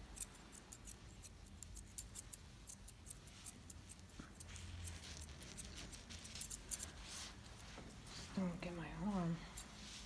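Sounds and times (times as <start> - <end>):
scissors snipping hair: 0.0 - 7.0.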